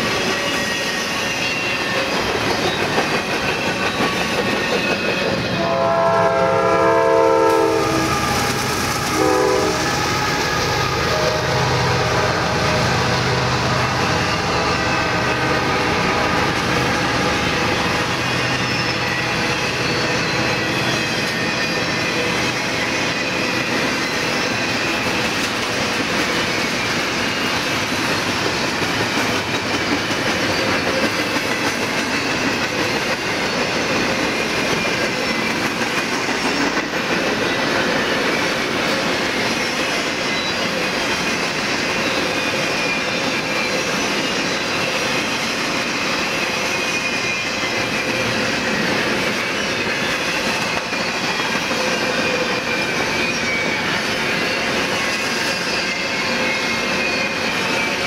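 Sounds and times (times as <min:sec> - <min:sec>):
train wheels on rails: 0:00.0 - 0:58.0.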